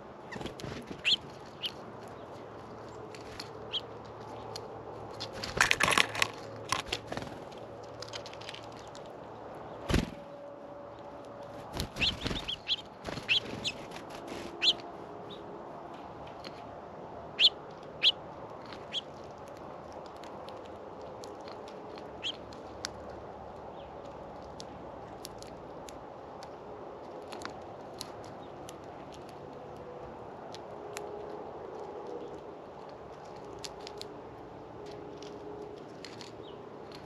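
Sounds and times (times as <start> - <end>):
birds pecking at seed: 0.0 - 37.0
wings fluttering: 0.2 - 9.1, 9.8 - 10.4, 11.4 - 15.4.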